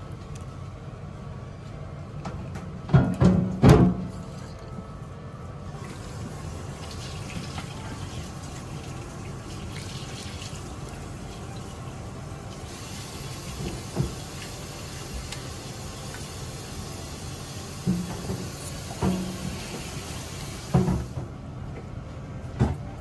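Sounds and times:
tap water running into sink: 0:05.8 - 0:11.7, 0:12.5 - 0:16.7, 0:17.7 - 0:21.2.

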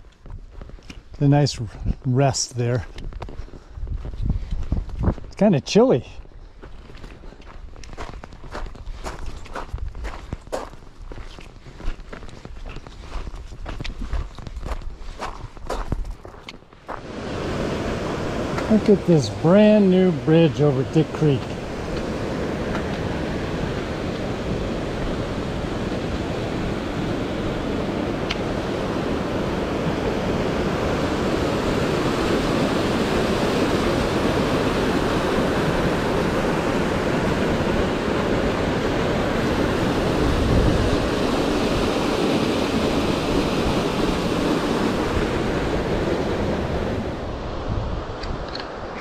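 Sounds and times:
wind buffeting microphone: 0:02.8 - 0:05.4, 0:07.2 - 0:16.4, 0:17.0 - 0:49.0
creek water rushing: 0:16.9 - 0:47.6.

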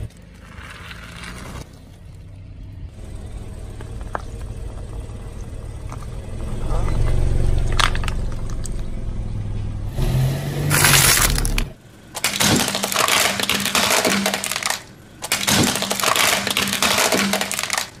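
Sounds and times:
car rolling rumble: 0:00.0 - 0:18.0
plastic toys crushed by tyre: 0:07.6 - 0:08.7, 0:10.7 - 0:18.0.

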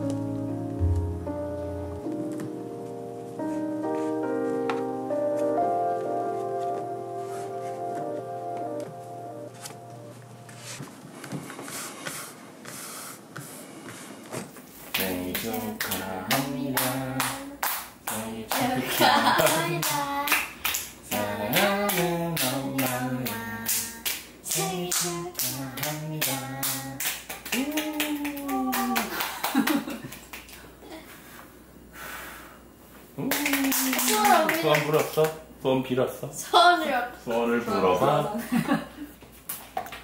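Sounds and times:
family singing together: 0:14.9 - 0:29.1
people clapping in time: 0:14.9 - 0:30.7, 0:33.2 - 0:35.4.

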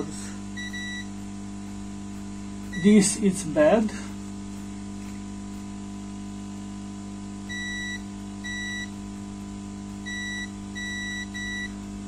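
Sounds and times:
steady low hum: 0:00.0 - 0:12.0
multimeter high-pitched beeps: 0:00.5 - 0:01.3, 0:02.6 - 0:03.2, 0:07.5 - 0:09.0, 0:10.0 - 0:11.8.

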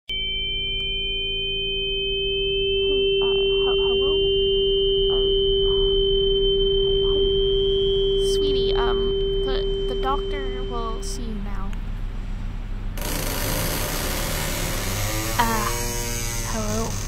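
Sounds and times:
steady high tone: 0:00.1 - 0:11.8, 0:12.7 - 0:17.0
low sine-tone drone: 0:00.1 - 0:17.0
rising high tone: 0:01.8 - 0:11.3, 0:13.0 - 0:17.0.

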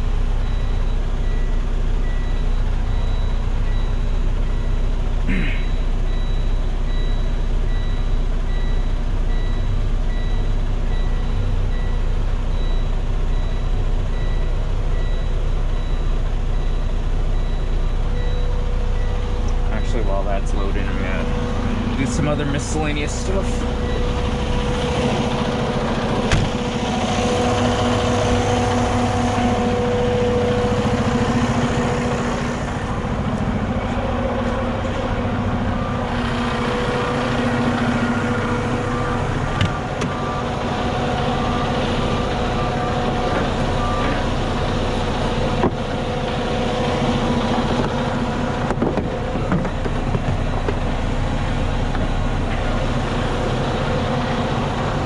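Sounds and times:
diesel truck engine idling: 0:00.0 - 0:55.0
short beeps: 0:00.4 - 0:25.8.

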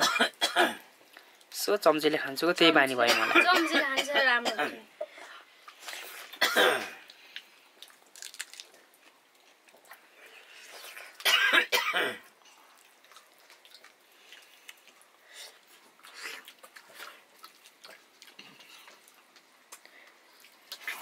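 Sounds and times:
person coughing: 0:00.0 - 0:00.8, 0:03.1 - 0:04.8, 0:06.4 - 0:07.0, 0:11.2 - 0:12.2
chewing: 0:07.1 - 0:11.2, 0:12.4 - 0:21.0.

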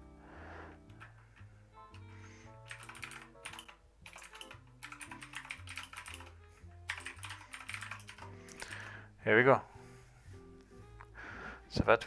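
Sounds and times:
quiet background music: 0:00.0 - 0:12.0
fast typing on keyboard: 0:02.6 - 0:08.9.

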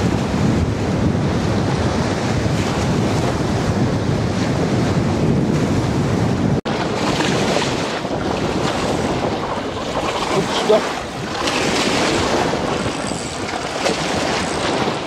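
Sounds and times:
wind buffeting microphone: 0:00.0 - 0:15.0
waves washing against concrete: 0:06.6 - 0:15.0.

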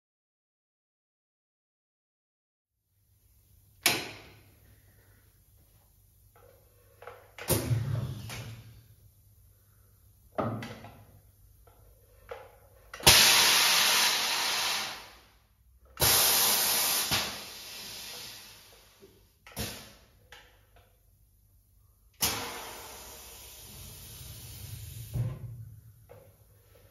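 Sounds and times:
compressed air hissing: 0:13.0 - 0:15.4, 0:16.0 - 0:20.0, 0:22.2 - 0:25.4.

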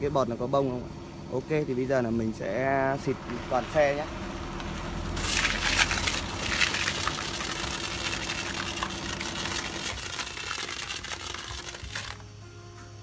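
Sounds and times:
steady machine hum: 0:00.0 - 0:13.0
foam spraying in hissing jet: 0:04.9 - 0:12.4.

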